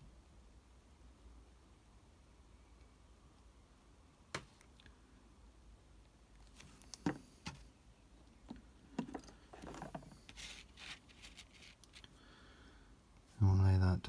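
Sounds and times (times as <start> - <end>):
plastic rustling and scraping: 9.0 - 12.1.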